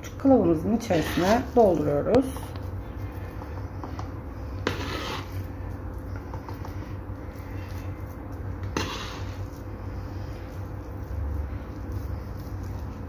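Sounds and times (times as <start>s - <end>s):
metal spoon scraping a bowl: 0.6s - 2.6s, 4.6s - 5.5s, 8.6s - 9.6s.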